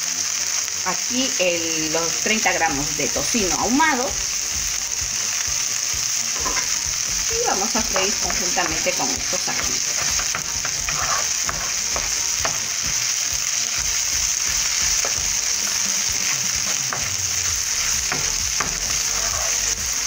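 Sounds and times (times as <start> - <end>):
bacon sizzling in a pan: 0.0 - 20.0
wooden spatula scraping pan: 6.4 - 6.8, 7.7 - 13.1, 14.4 - 19.8.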